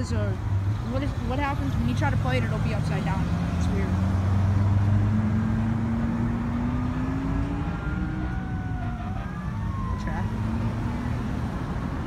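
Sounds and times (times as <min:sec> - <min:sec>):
vehicle engine hum passing: 0:00.0 - 0:12.0
faint siren wailing: 0:02.9 - 0:12.0.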